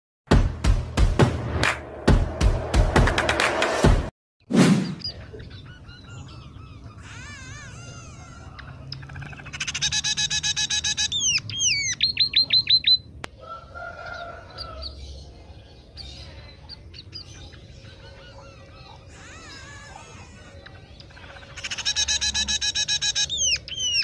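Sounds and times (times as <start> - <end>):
bird singing varied song: 4.8 - 24.0.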